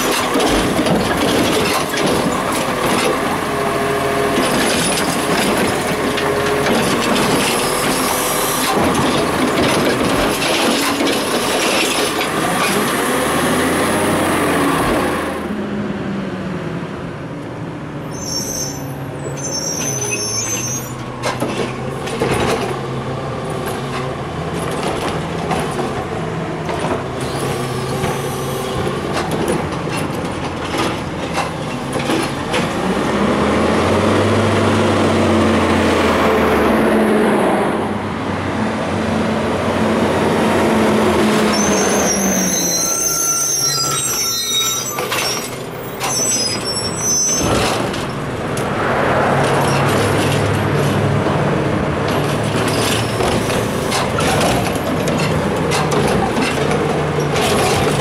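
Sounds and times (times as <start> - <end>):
garbage truck diesel engine: 0.0 - 58.0
brakes squealing: 18.0 - 22.2, 41.2 - 51.0.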